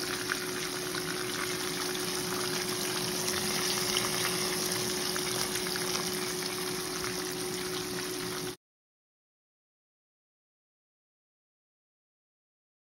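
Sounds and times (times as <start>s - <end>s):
faint steady hum: 0.0s - 8.6s
fish sizzling in hot oil: 0.0s - 8.6s.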